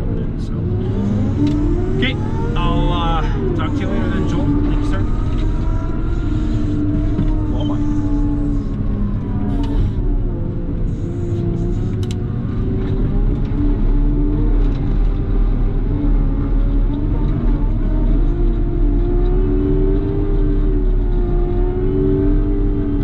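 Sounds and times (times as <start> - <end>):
diesel engine running under load: 0.0 - 15.4.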